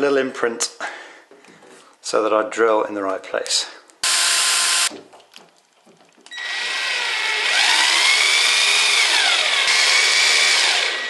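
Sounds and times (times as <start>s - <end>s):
cordless drill motor whine: 4.0s - 4.9s, 6.3s - 11.0s.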